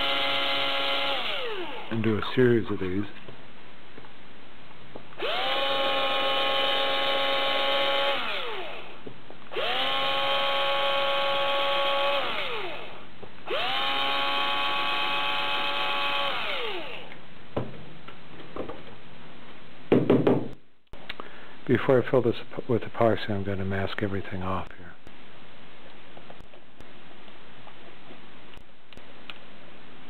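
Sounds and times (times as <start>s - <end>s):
power drill whining: 0.0s - 2.0s, 5.2s - 17.2s.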